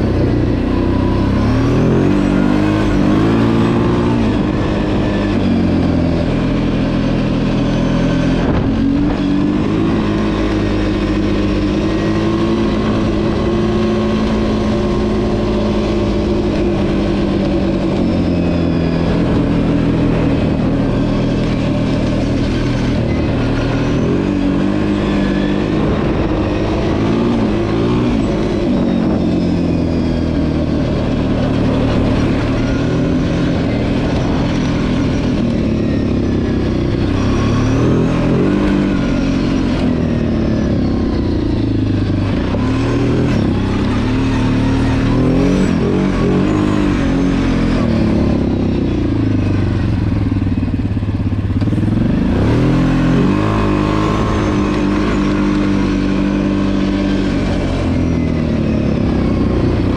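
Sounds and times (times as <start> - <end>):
quad engine revving: 0.0 - 59.9.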